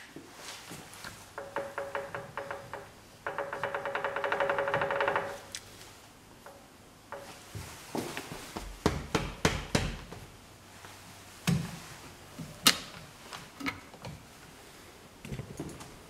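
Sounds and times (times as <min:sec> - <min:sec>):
hard objects knocking and clicking: 0:01.4 - 0:05.4.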